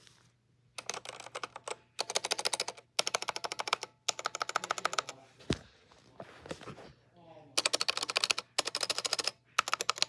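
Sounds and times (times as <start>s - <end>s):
mechanical keyboard typing: 0.8s - 5.2s, 7.6s - 10.0s.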